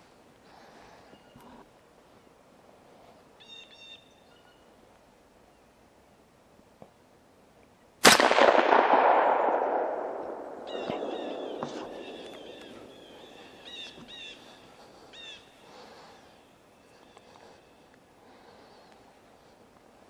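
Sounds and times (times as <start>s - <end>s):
rifle shot echoing: 8.0s - 13.7s.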